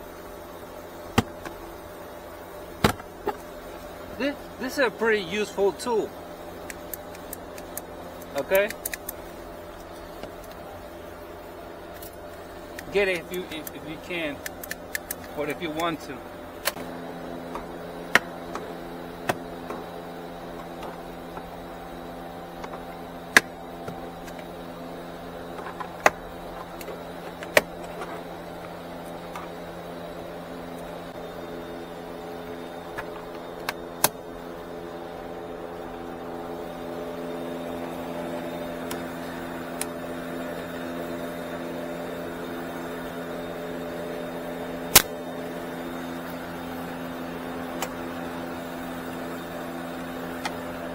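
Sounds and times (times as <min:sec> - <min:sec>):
steady mechanical hum: 0:00.0 - 0:50.9.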